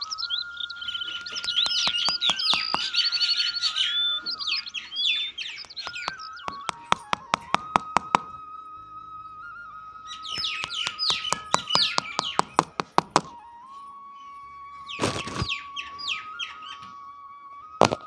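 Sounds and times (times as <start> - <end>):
small birds chirping: 0.0 - 18.0
thin whistle-like held notes: 0.0 - 18.0
wooden stake tapped into ground: 1.2 - 3.0, 5.6 - 8.3, 10.3 - 13.4, 15.0 - 15.5.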